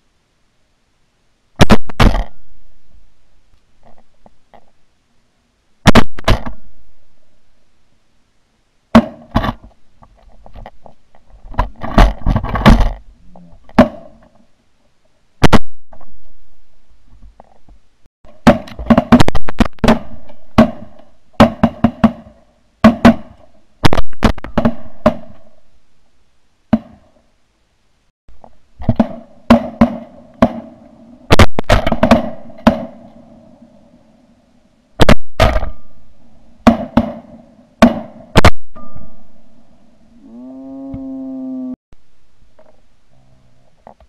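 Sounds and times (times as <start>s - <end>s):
shotgun shots: 29.0s - 33.1s, 36.6s - 38.6s.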